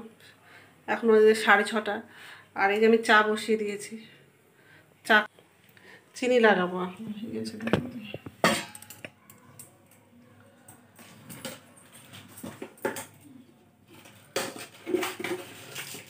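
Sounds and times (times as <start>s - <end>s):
utensils knocking: 7.6s - 9.2s.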